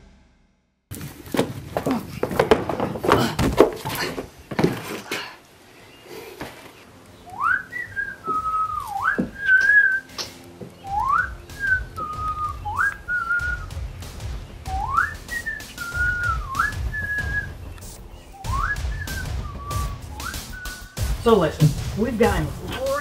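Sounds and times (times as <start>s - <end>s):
footsteps on wooden deck: 0.9s - 5.3s, 8.2s - 20.6s
man whistling a slow tune: 7.3s - 13.7s, 14.6s - 17.6s, 18.3s - 21.0s.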